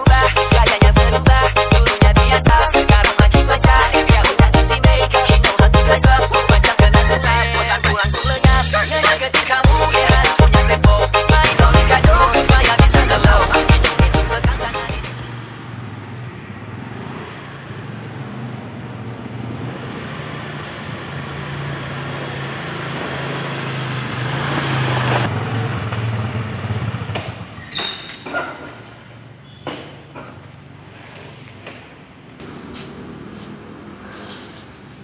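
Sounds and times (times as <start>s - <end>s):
motor scooter engine running: 10.1s - 14.6s, 22.4s - 27.6s
high squeal: 27.5s - 28.4s.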